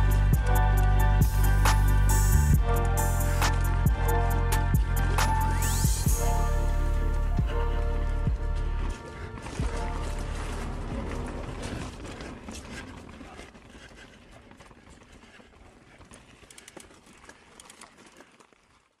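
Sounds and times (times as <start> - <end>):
bike tyres on dirt trail: 0.0 - 19.0
bike clicks and rattles: 8.8 - 19.0.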